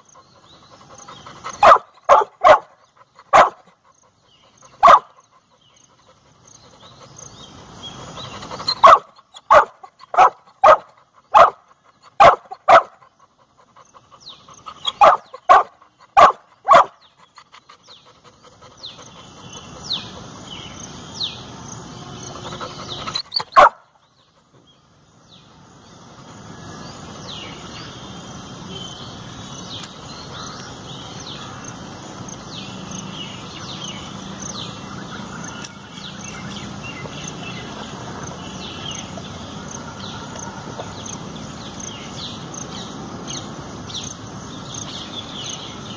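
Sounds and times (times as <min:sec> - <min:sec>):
birds chirping: 0:00.0 - 0:45.9
dog barking: 0:01.5 - 0:03.7, 0:04.8 - 0:05.2, 0:08.8 - 0:13.0, 0:14.8 - 0:17.0, 0:23.3 - 0:23.8.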